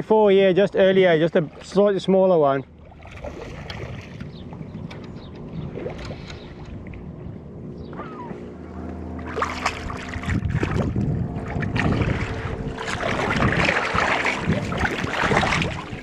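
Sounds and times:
fish splashing in water: 0:02.8 - 0:04.4, 0:09.2 - 0:16.0.

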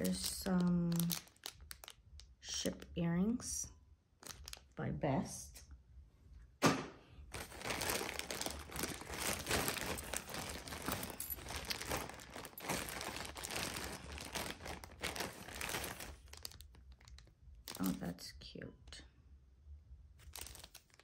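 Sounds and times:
plastic bag crinkling: 0:00.0 - 0:02.9, 0:04.2 - 0:04.8, 0:07.3 - 0:18.2, 0:20.2 - 0:21.0
metal jewelry jingling: 0:09.8 - 0:13.4.

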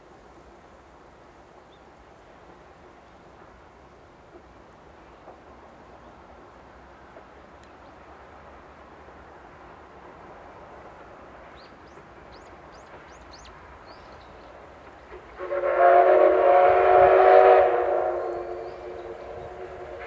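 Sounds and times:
small birds chirping: 0:11.5 - 0:14.6
steam locomotive whistle: 0:15.4 - 0:20.0.

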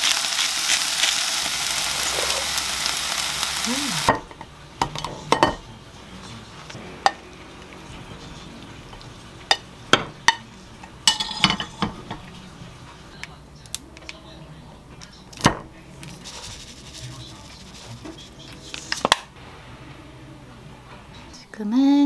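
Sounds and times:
metal utensil clinking on wok: 0:08.9 - 0:12.3.

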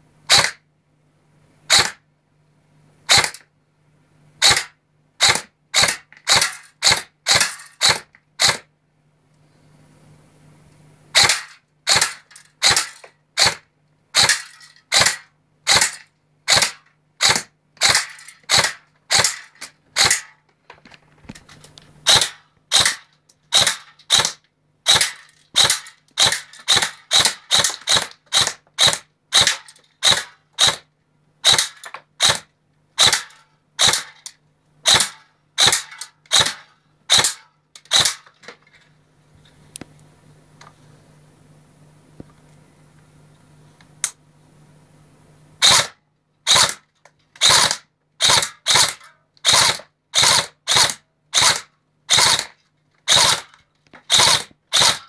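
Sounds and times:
airsoft rifle single shots: 0:00.3 - 0:00.6, 0:01.7 - 0:02.0, 0:03.1 - 0:03.4, 0:04.4 - 0:08.7, 0:11.2 - 0:13.6, 0:14.2 - 0:19.4, 0:22.1 - 0:30.8, 0:31.4 - 0:34.2, 0:34.9 - 0:38.2.

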